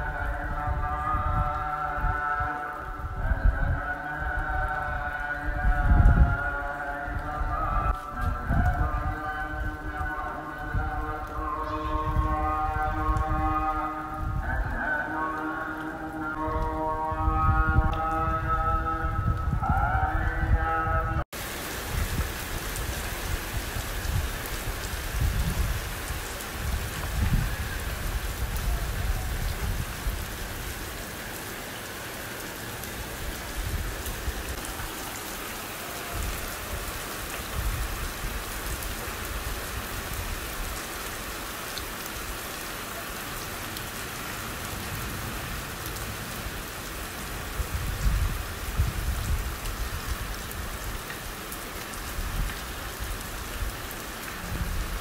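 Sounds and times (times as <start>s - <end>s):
steady rain falling: 0.0s - 55.0s
low gusty rumbles: 4.6s - 10.0s, 11.9s - 14.8s, 16.5s - 30.8s, 47.6s - 50.0s.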